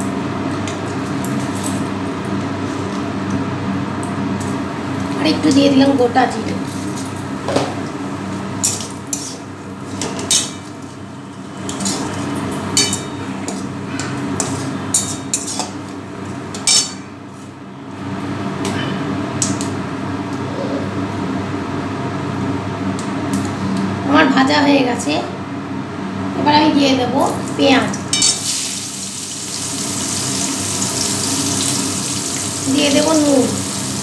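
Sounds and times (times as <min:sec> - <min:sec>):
hot oil hiss: 0:28.4 - 0:34.0.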